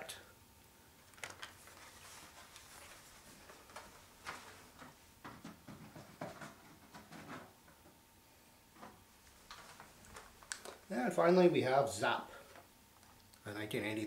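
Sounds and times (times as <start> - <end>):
cardboard rustling: 1.1 - 7.5.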